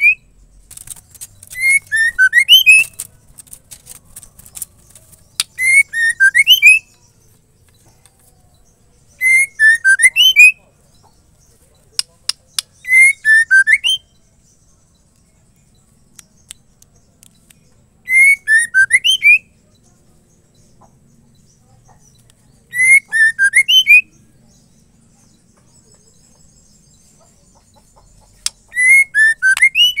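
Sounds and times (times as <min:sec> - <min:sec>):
bird whistled phrase: 0:18.1 - 0:19.4, 0:22.7 - 0:24.1, 0:28.7 - 0:30.0.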